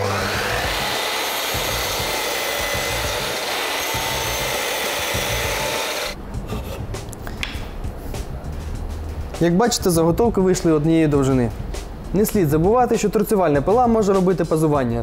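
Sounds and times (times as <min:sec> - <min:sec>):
mitre saw cutting wood: 0:00.0 - 0:06.2.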